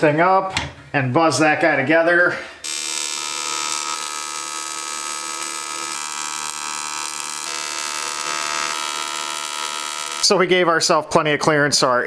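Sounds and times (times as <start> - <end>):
welding arc buzzing and hissing: 2.6 - 10.3.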